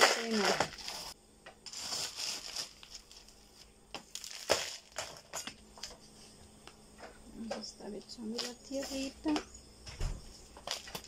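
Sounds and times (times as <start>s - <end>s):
small stones rattling into pot: 0.0s - 3.3s, 4.0s - 5.6s.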